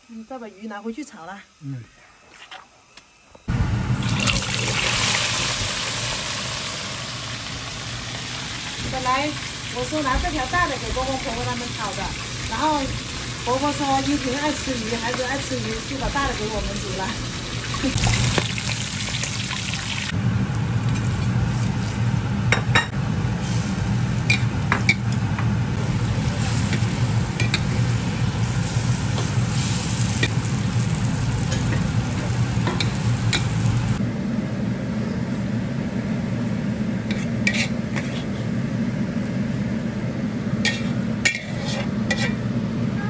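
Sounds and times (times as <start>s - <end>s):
fish sizzling in oil: 3.9s - 20.2s, 23.4s - 34.0s
steady low hum: 20.1s - 43.0s
utensils scraping a pan: 37.1s - 38.5s, 40.7s - 42.4s.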